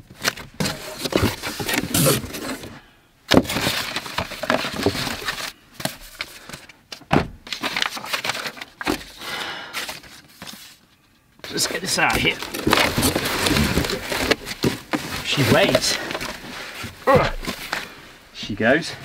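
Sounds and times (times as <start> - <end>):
cardboard scraping and rustling: 0.1 - 6.4, 11.5 - 18.0
paper sheets rustling: 7.5 - 9.2, 9.8 - 18.0.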